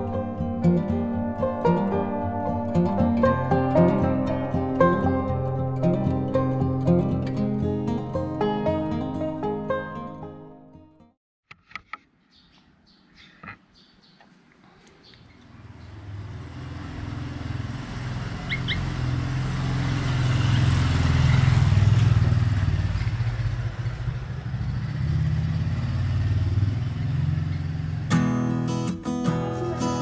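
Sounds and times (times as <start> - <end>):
acoustic guitar music: 0.0 - 11.1, 28.1 - 30.0
motorcycle engine passing: 15.4 - 28.1.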